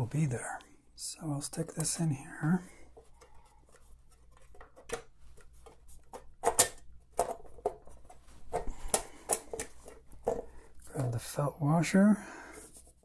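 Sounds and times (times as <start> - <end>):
metal cover clicks and knocks: 6.4 - 7.8.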